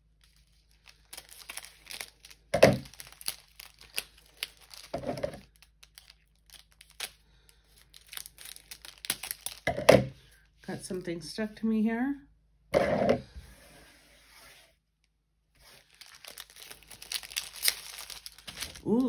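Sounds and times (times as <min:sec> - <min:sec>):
plastic packaging crinkling and tearing: 0:00.0 - 0:09.7, 0:15.6 - 0:19.0.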